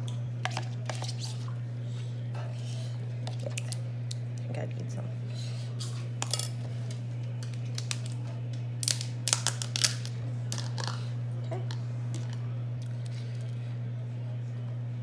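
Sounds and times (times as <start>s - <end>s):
steady low hum: 0.0s - 15.0s
spoon scraping plastic tub: 0.5s - 1.5s.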